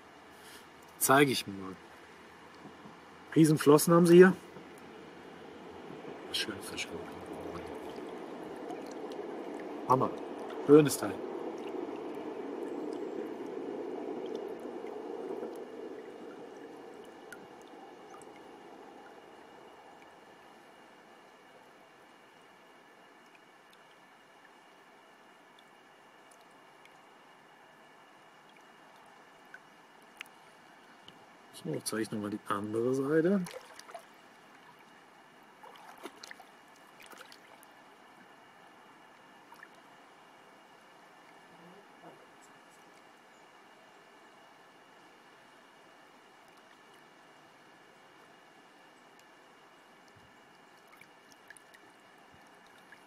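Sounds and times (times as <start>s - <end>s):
shallow water sloshing: 1.8s - 27.2s, 33.3s - 41.5s
faint ticks: 28.4s - 31.2s, 49.1s - 49.4s.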